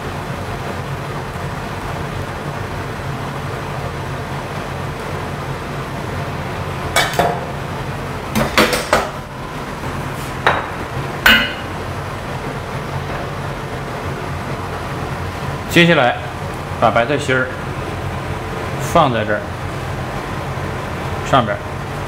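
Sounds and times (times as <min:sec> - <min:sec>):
steady background hum: 0:00.0 - 0:22.0
kitchenware clinking: 0:10.4 - 0:11.8
metal ladle knocking on wok: 0:10.5 - 0:11.8.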